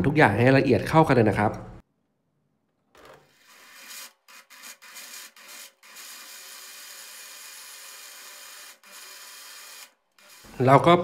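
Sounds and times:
electric blender running: 3.0s - 10.6s.

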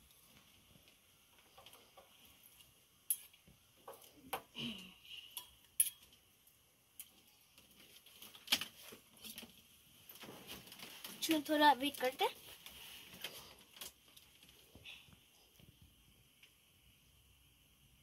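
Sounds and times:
steel bowl and utensils clinking: 5.3s - 6.2s.

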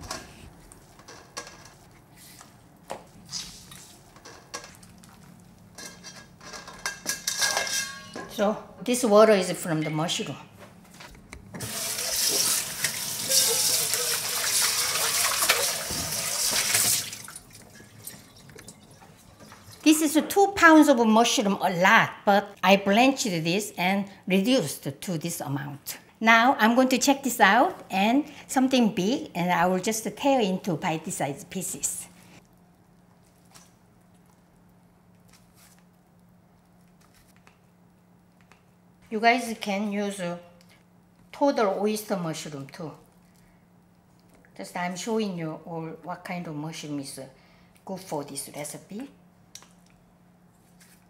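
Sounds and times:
faint steady hum: 0.0s - 51.0s
water splashing into metal bowl: 11.6s - 19.8s
kitchen tap running: 11.6s - 20.0s.

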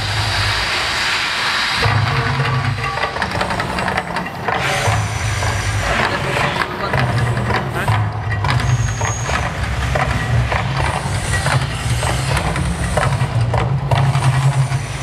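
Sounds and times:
deep rumble: 0.0s - 15.0s
drum beats: 1.8s - 15.0s.

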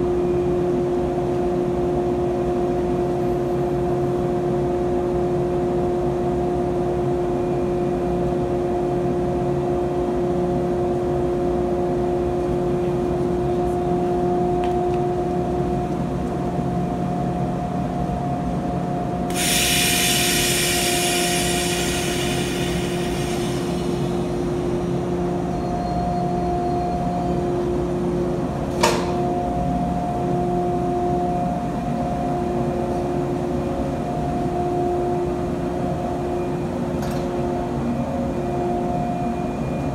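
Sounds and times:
electric train machinery humming: 0.0s - 39.9s
air hissing: 19.3s - 25.0s.

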